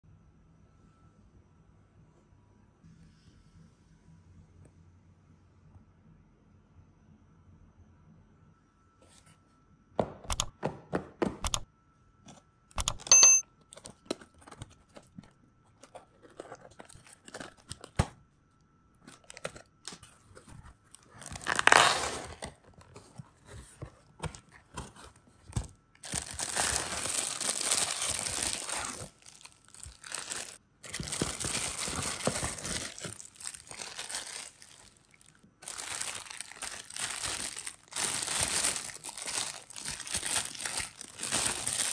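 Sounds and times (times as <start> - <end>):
plastic bags crinkling: 15.7 - 18.0, 19.0 - 20.1, 20.8 - 41.9
cardboard tearing: 21.0 - 41.9.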